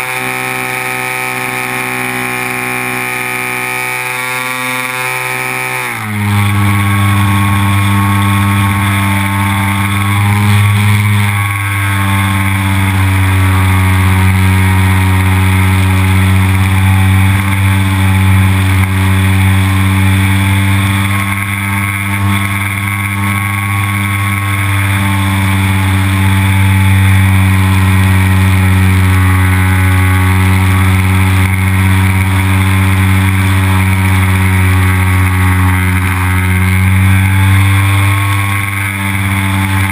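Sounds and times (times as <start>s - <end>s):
model plane motor and propeller: 0.0s - 39.9s.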